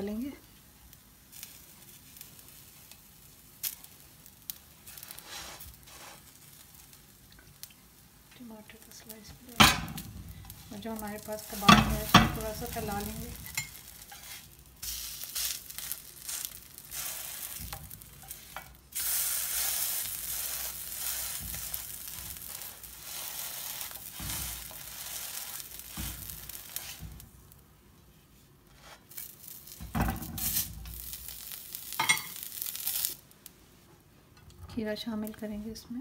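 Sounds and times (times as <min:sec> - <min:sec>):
food sizzling on a griddle: 0:00.0 - 0:27.8, 0:28.7 - 0:33.5
spatula scraping a griddle: 0:04.8 - 0:06.4, 0:10.5 - 0:27.2, 0:28.7 - 0:29.7.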